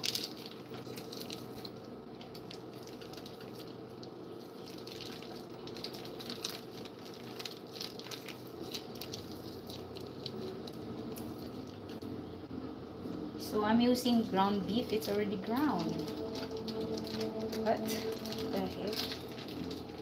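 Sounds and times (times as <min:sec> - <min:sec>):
plastic wrapping crinkling: 0:00.0 - 0:12.0, 0:14.7 - 0:20.0
wet squishing of meat: 0:00.0 - 0:12.0.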